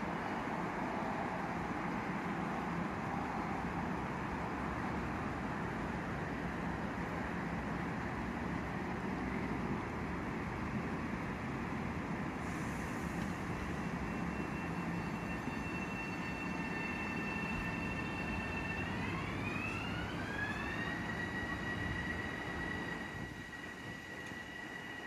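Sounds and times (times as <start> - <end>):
electric train running: 3.9 - 25.0
traction motor whine: 13.2 - 25.0.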